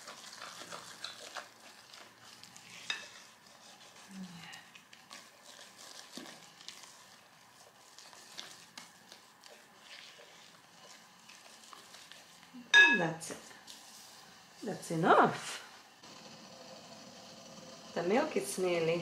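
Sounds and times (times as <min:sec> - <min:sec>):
dough squeezed by hand in bowl: 0:00.0 - 0:12.6.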